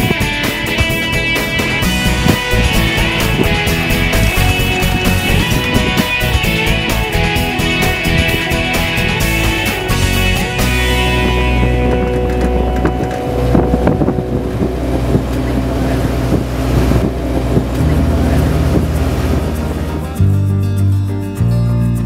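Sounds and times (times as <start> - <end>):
wind buffeting microphone: 0.0 - 20.2
vehicle engine running: 0.0 - 20.7.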